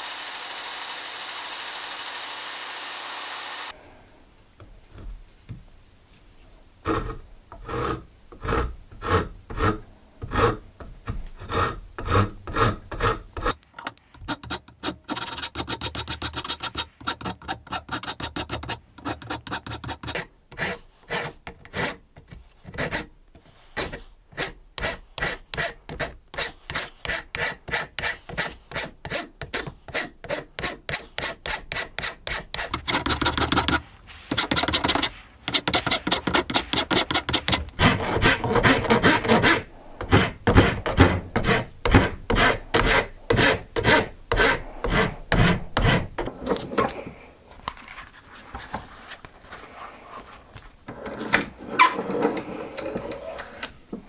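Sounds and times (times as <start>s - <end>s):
hand saw cutting wood: 0.0s - 3.8s, 6.9s - 13.6s, 14.2s - 22.0s, 23.8s - 47.0s
file rasping wood: 6.9s - 13.6s, 14.2s - 46.4s.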